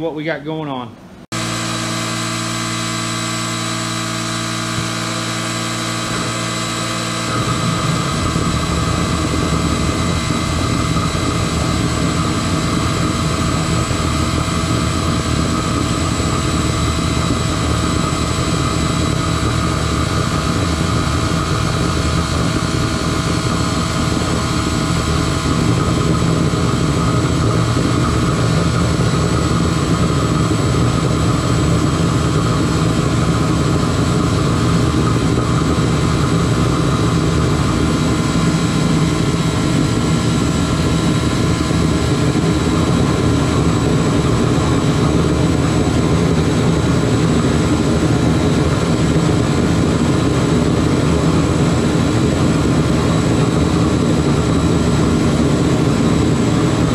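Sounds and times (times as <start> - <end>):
machine hum and whine: 0.0 - 56.9
burner roaring: 1.3 - 56.9.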